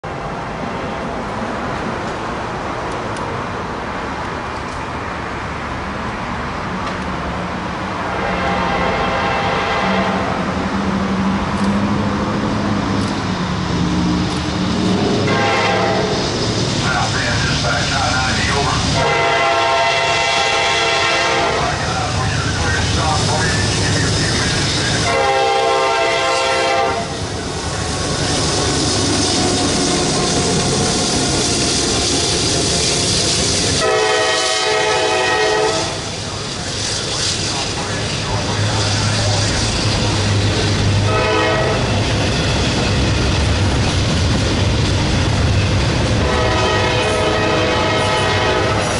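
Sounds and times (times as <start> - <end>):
freight train rumbling: 0.0 - 48.9
locomotive engine hum: 0.0 - 48.9
locomotive air horn blast: 8.2 - 10.4, 15.2 - 16.2, 18.9 - 21.9, 25.0 - 27.2, 33.8 - 36.1, 41.0 - 41.9, 46.2 - 48.9.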